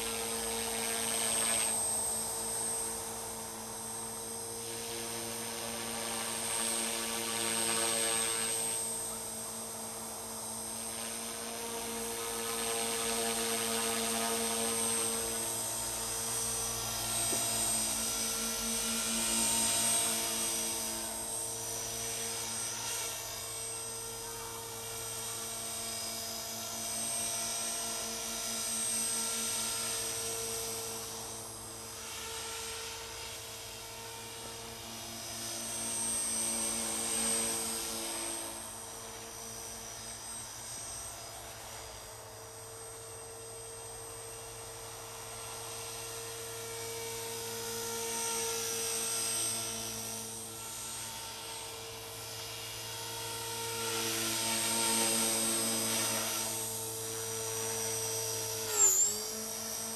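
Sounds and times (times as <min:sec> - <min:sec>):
rotor blades buzzing: 0:00.0 - 0:42.0, 0:42.7 - 0:59.9
rc helicopter motor whine: 0:00.0 - 0:59.9.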